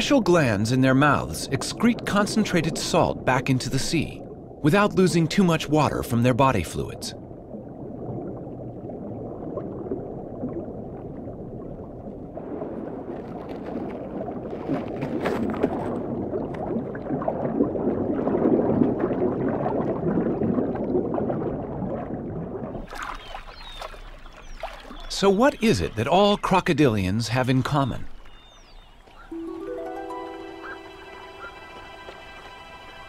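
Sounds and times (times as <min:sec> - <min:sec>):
muffled underwater water swirling: 0:00.0 - 0:25.2
faint crackles: 0:08.0 - 0:18.3.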